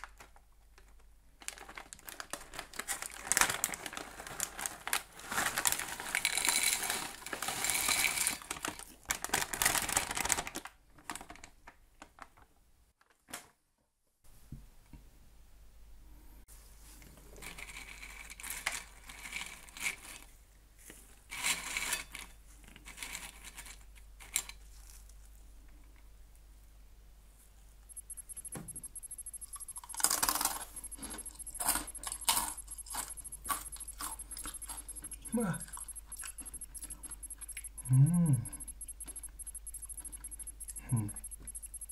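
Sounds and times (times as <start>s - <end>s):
plastic packet rustling: 0.0s - 13.3s
snack sticks clattering into glass bowl: 6.1s - 8.8s, 29.8s - 37.3s
faint fast high ticking: 27.9s - 41.9s
crunchy snack being chewed: 29.4s - 41.8s.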